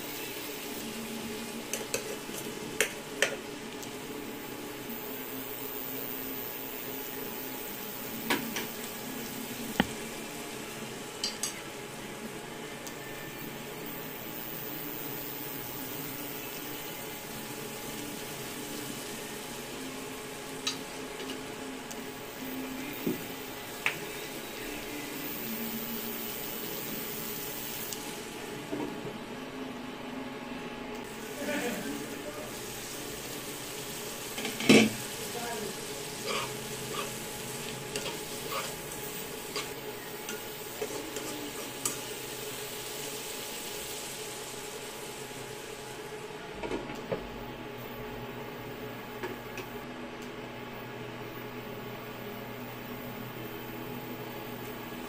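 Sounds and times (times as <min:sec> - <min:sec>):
shrimp sizzling in a pan: 0:00.0 - 0:28.7, 0:31.1 - 0:46.3.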